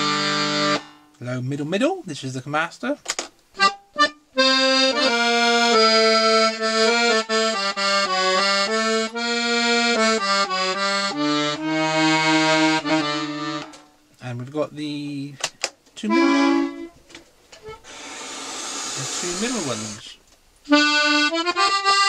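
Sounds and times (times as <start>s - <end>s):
accordion playing held chords: 0.0s - 1.1s, 3.6s - 14.0s, 16.0s - 17.0s, 17.6s - 20.0s, 20.7s - 22.0s.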